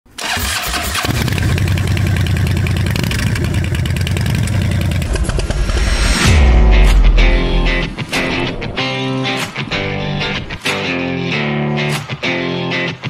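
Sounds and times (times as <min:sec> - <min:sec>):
motorcycle engine starting and idling: 0:00.1 - 0:06.2.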